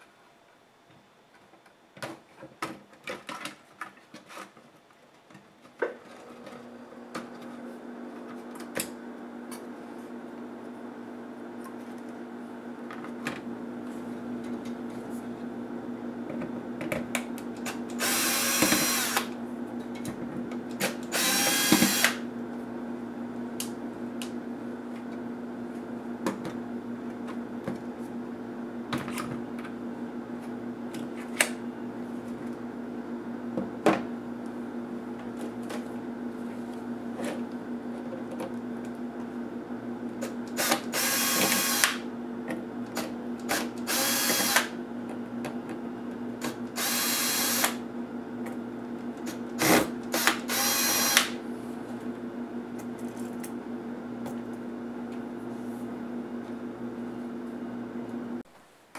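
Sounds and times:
electric screwdriver running: 0:17.9 - 0:19.3, 0:21.0 - 0:22.2, 0:40.6 - 0:42.0, 0:43.5 - 0:44.7, 0:46.8 - 0:47.8, 0:49.6 - 0:51.4.

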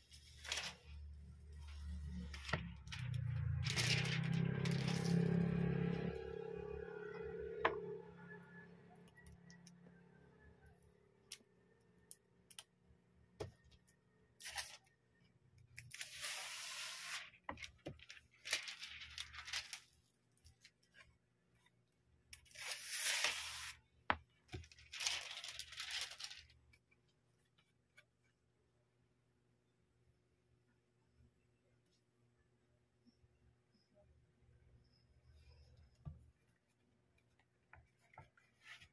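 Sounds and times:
plastic film being peeled: 0:00.0 - 0:05.6, 0:14.4 - 0:14.9, 0:15.8 - 0:20.0, 0:22.4 - 0:23.8, 0:24.6 - 0:26.6.

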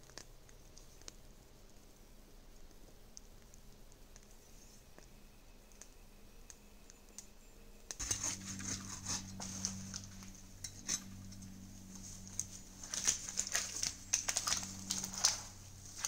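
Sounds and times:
low steady hum: 0:00.0 - 0:16.0
pole dragged through undergrowth: 0:08.0 - 0:16.0.

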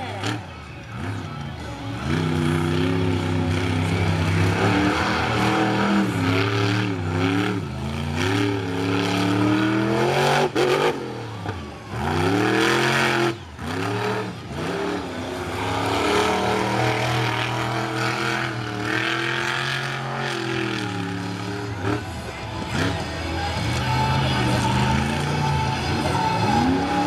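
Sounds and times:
monster truck engine revving: 0:00.0 - 0:27.0.

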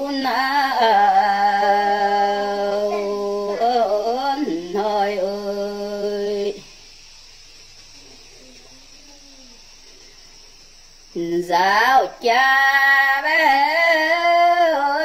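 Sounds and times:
woman singing solo: 0:11.2 - 0:15.0.

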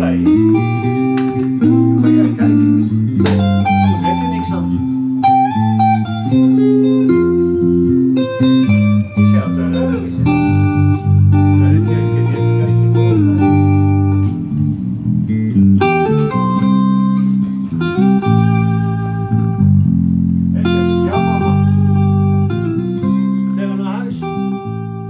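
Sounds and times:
guitar music with held notes: 0:00.0 - 0:25.0.

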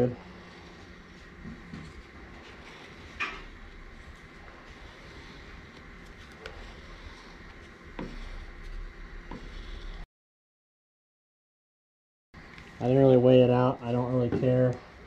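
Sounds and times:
low hum: 0:00.0 - 0:10.0
stir stick and cup handling: 0:00.6 - 0:10.0.

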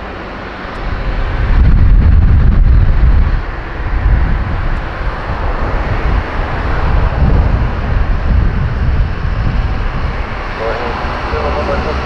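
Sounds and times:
jet engines roaring: 0:00.0 - 0:12.0.

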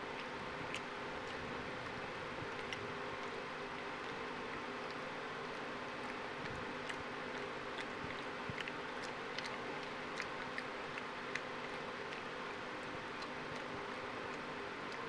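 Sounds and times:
monkey chewing with lip-smacking: 0:00.0 - 0:15.0
steady background hum: 0:00.0 - 0:15.0.

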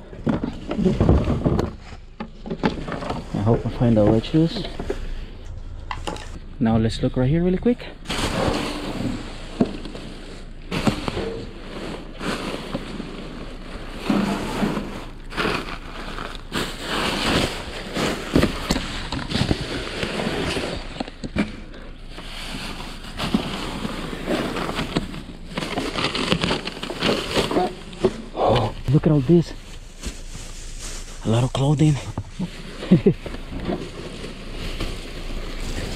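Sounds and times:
plastic bags crinkling: 0:08.1 - 0:35.9.

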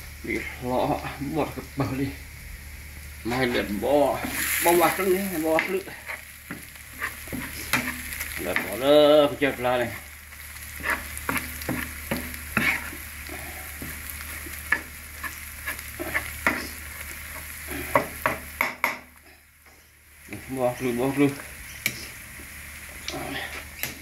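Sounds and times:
onions sizzling in frying pan: 0:00.0 - 0:24.0
metal spoon scraping pan: 0:04.2 - 0:08.8, 0:10.8 - 0:13.0.

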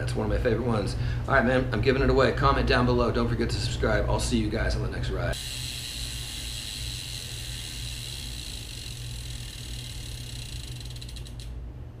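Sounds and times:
low hum: 0:05.3 - 0:12.0.

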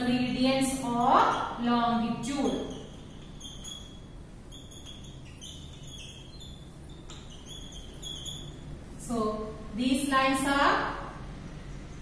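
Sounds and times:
whiteboard marker squeaking: 0:00.6 - 0:09.1.

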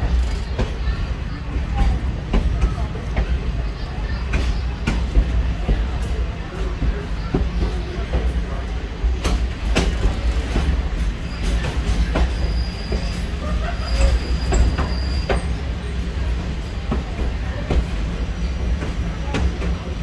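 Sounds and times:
train wheels rumbling on track: 0:00.0 - 0:20.0
high wheel squeal: 0:11.2 - 0:15.6.

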